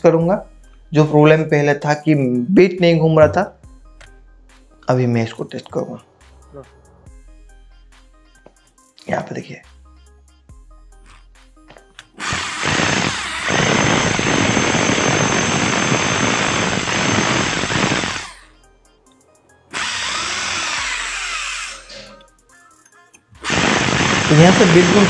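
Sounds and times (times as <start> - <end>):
electric hammer drill whining: 12.1 - 18.5, 19.7 - 22.2, 23.4 - 25.0.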